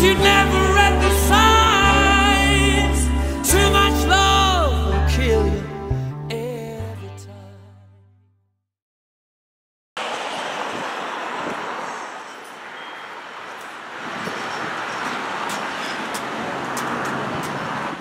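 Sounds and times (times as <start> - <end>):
street and traffic noise: 10.0 - 18.0.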